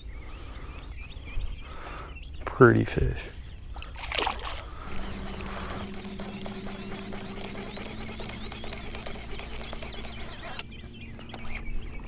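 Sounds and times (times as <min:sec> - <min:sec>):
birds chirping: 0:00.0 - 0:12.0
steady low hum: 0:03.3 - 0:12.0.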